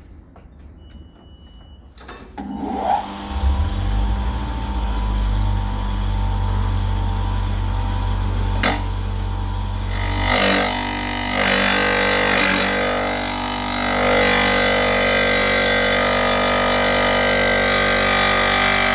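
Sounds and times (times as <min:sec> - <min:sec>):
tile saw motor running: 0:02.6 - 0:18.9
blade grinding through stone: 0:09.8 - 0:18.9.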